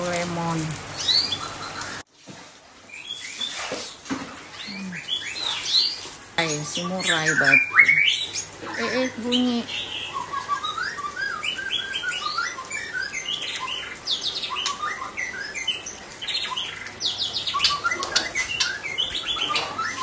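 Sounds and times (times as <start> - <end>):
bird singing whistles and trills: 4.6 - 20.0.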